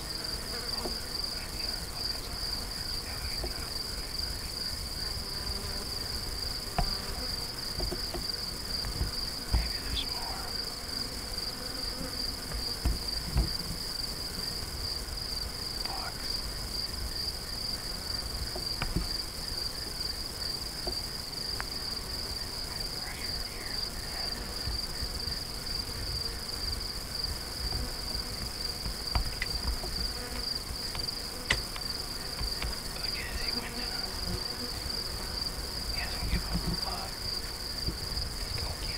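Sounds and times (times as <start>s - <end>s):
insects trilling: 0.0s - 38.9s
knocks and clicks: 7.8s - 9.7s.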